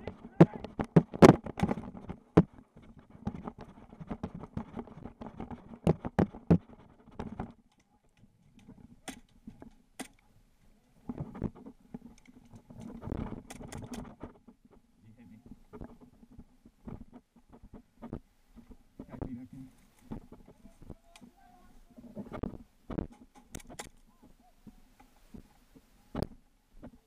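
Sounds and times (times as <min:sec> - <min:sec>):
gear clicks and knocks: 0:00.0 - 0:10.2, 0:11.1 - 0:14.6.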